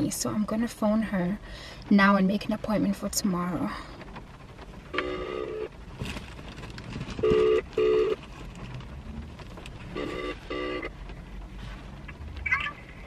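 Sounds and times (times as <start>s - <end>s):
phone ringback tone: 7.2s - 8.2s.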